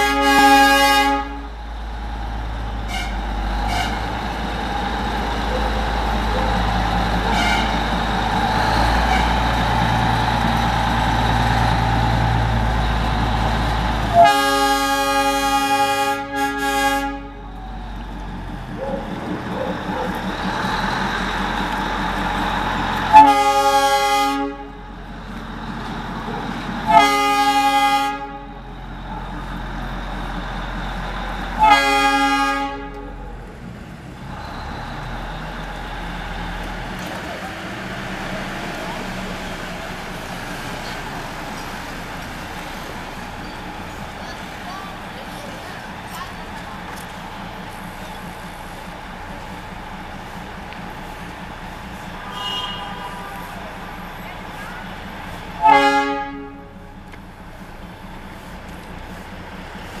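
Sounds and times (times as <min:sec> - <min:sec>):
locomotive horn blasts: 0:00.0 - 0:01.6, 0:02.8 - 0:04.2, 0:07.2 - 0:08.0, 0:14.0 - 0:17.6, 0:23.1 - 0:24.8, 0:26.8 - 0:28.6, 0:31.6 - 0:33.2, 0:52.2 - 0:53.8, 0:55.6 - 0:57.0
locomotive engine rumble: 0:00.0 - 1:00.0.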